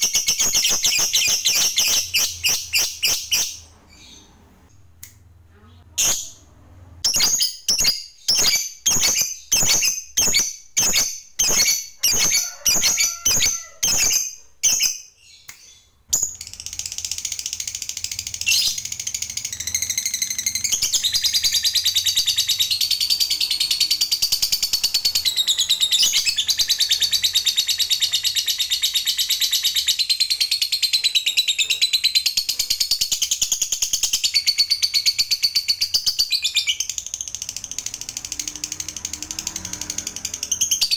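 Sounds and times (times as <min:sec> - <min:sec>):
lovebird chirping: 0:00.0 - 0:04.8, 0:05.7 - 0:40.9
lovebird chattering trill: 0:07.0 - 0:15.0.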